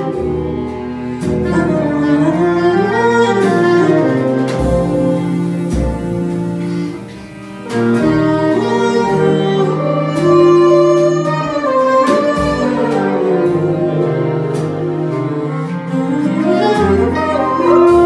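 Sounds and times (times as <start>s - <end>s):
bass saxophone: 0.0s - 18.0s
cello: 0.0s - 18.0s
clarinet: 0.0s - 18.0s
double bass: 0.0s - 18.0s
violin: 0.0s - 18.0s
drum hits: 4.4s - 8.7s.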